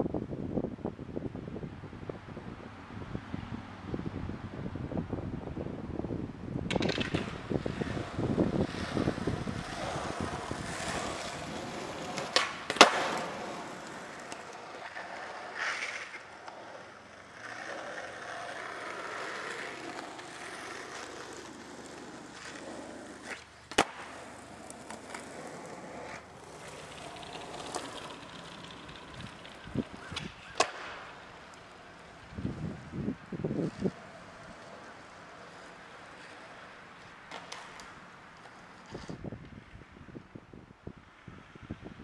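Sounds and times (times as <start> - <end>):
skateboard wheels rolling on asphalt: 0.0 - 42.0
skateboard clacking on pavement: 6.6 - 32.9, 33.5 - 39.6.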